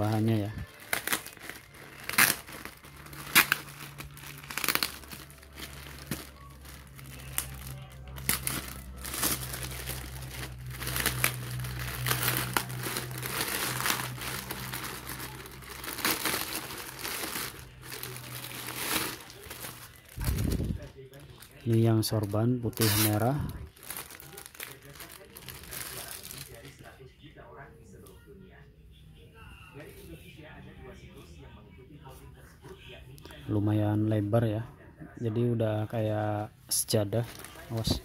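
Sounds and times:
plastic mailer tearing and crinkling: 0.0s - 26.8s, 37.1s - 38.0s.

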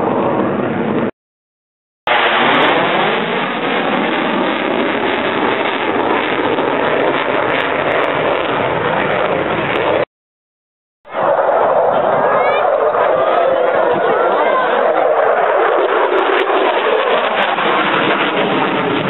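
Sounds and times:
fighter jet flying past: 2.1s - 10.1s, 11.1s - 19.0s.

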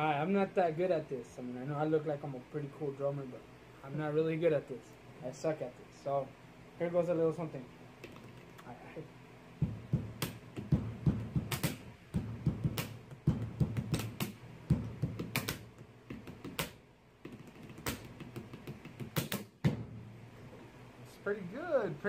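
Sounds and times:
pencils tapping on wooden table: 15.1s - 19.4s.

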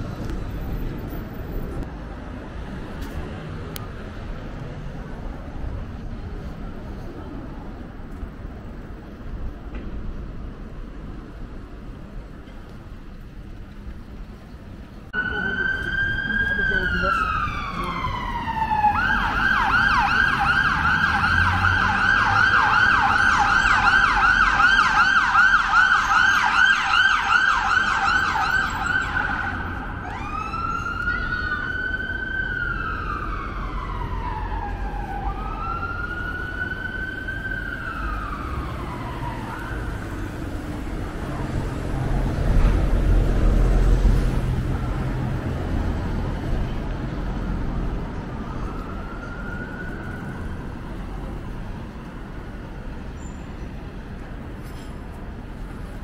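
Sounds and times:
emergency siren wailing and yelping: 15.2s - 40.2s, 48.0s - 51.6s.

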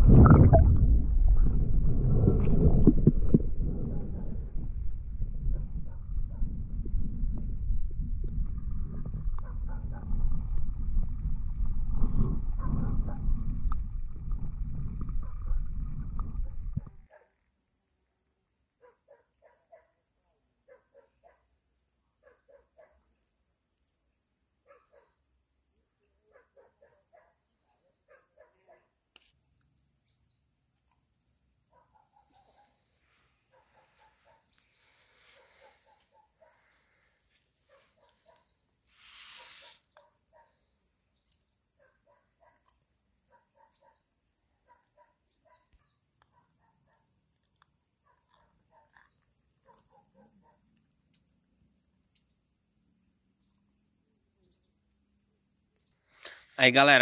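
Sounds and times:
low insect chirps: 16.0s - 56.4s
crickets trilling: 16.0s - 57.0s.

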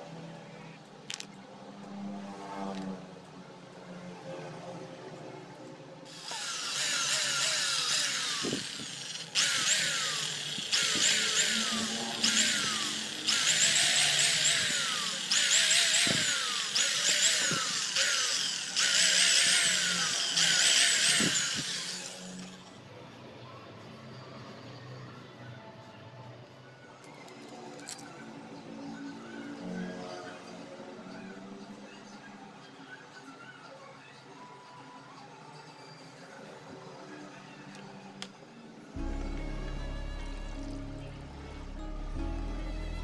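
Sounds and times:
electric drill boring plastic: 6.1s - 22.7s
background music: 39.0s - 43.0s.

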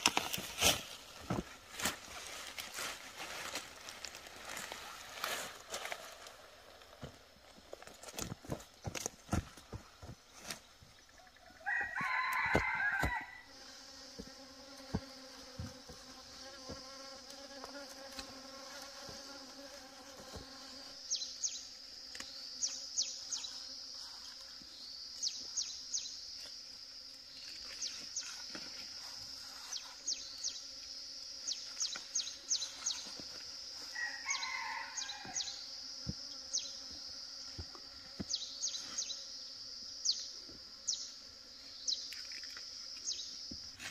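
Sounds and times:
high insect drone: 0.0s - 43.9s
rooster crowing: 11.4s - 13.5s, 33.9s - 35.6s.

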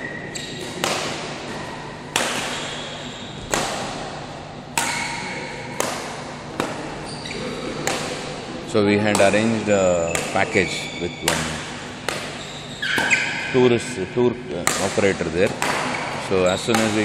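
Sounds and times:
badminton racket hitting shuttlecock: 0.6s - 7.1s, 7.7s - 8.5s, 9.1s - 10.6s, 11.3s - 13.4s, 14.6s - 17.0s.

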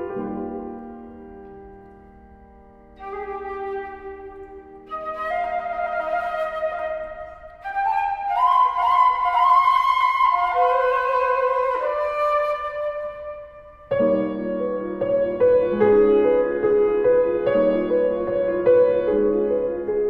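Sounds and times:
piano chords: 0.0s - 20.0s
solo flute: 2.9s - 14.5s.

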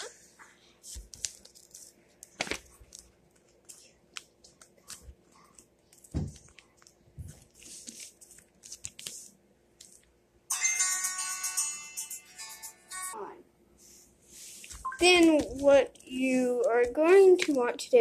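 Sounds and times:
paper rustling and crinkling: 0.5s - 10.0s.

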